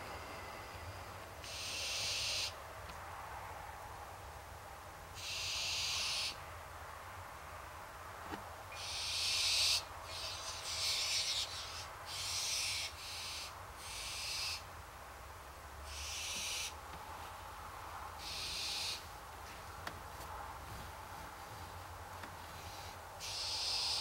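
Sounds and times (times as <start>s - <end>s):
barn owls hissing: 0.0s - 2.6s, 5.2s - 6.4s, 8.7s - 14.7s, 15.9s - 16.8s, 18.2s - 19.1s, 22.5s - 24.0s.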